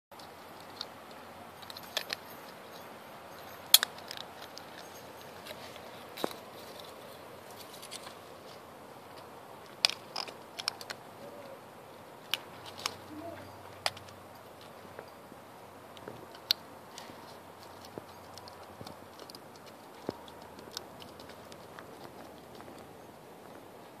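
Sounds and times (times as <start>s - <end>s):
puppy crunching pine cone: 3.6s - 11.1s, 15.8s - 23.0s.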